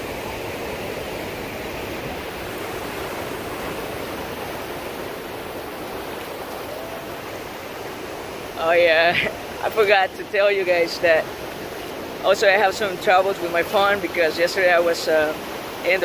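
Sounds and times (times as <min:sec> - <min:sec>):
ocean surf breaking: 0:00.0 - 0:16.0.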